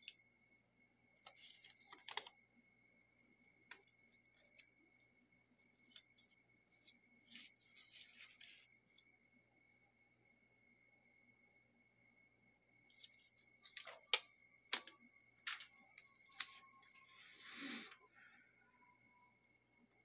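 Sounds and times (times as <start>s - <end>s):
paper rustling and crinkling: 5.8s - 9.0s
faint high-pitched tone: 9.3s - 20.0s.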